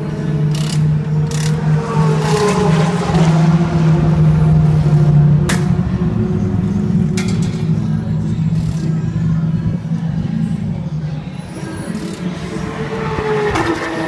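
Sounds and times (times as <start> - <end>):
car engine revving: 0.3 - 7.2.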